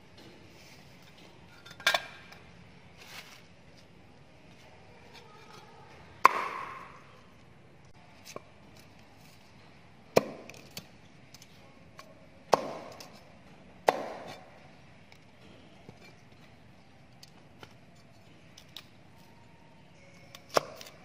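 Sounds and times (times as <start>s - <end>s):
cleaver chopping on wooden board: 13.9s - 14.3s.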